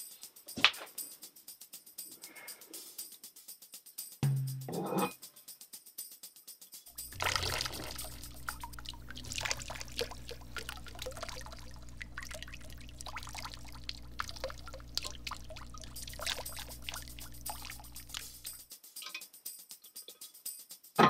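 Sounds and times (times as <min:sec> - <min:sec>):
small splashes: 0:07.0 - 0:18.6
steady low hum: 0:07.0 - 0:18.6
water pouring and trickling: 0:07.0 - 0:18.6.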